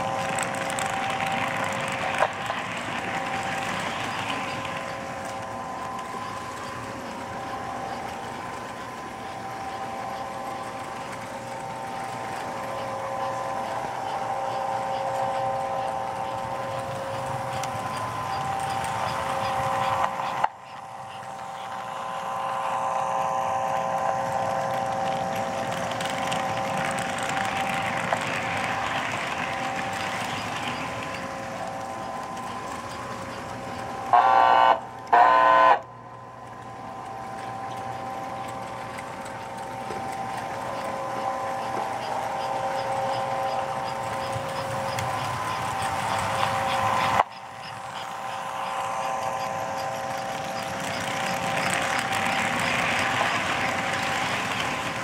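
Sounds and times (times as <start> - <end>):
model train rolling on track: 0.0 - 55.0
electric train whistle blasts: 34.1 - 35.9.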